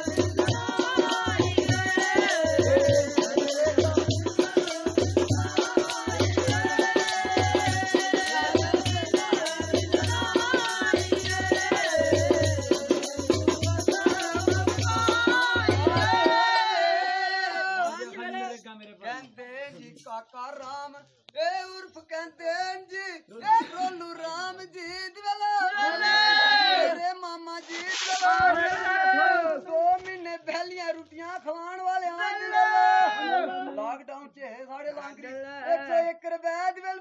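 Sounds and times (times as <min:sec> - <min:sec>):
shaken rattle: 0:00.0 - 0:16.0, 0:27.6 - 0:28.4.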